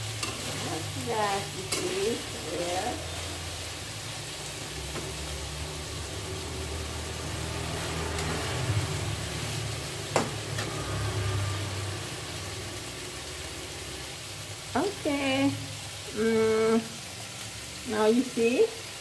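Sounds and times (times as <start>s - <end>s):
metal spatula scraping a pan: 0.0s - 3.4s
vegetables sizzling in a wok: 0.0s - 19.0s
spatula striking a wok: 10.1s - 10.8s.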